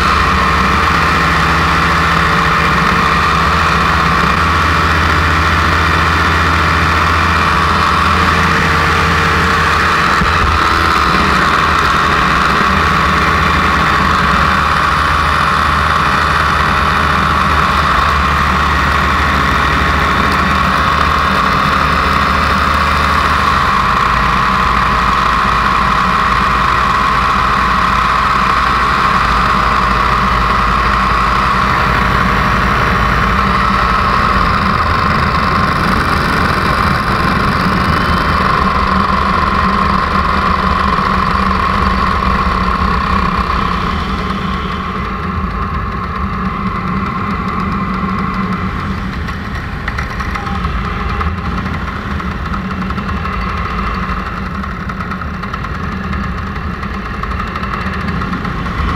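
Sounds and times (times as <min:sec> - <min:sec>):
paramotor engine drone: 0:00.0 - 0:58.9.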